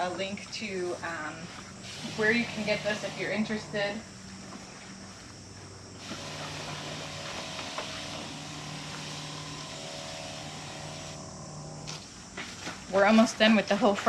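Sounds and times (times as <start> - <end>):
sprayer pump humming: 1.1 - 5.4, 6.0 - 13.9
hiss of spray mist: 1.8 - 3.3, 6.0 - 11.2.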